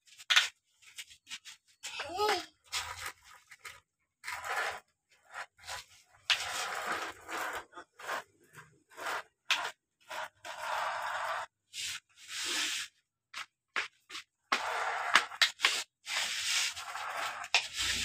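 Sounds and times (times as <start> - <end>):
toy excavator scraping sandy soil: 2.7 - 13.0, 14.5 - 18.0.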